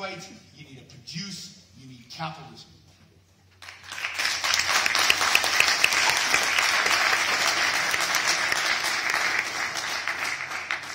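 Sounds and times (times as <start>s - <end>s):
audience applauding: 3.6s - 10.9s.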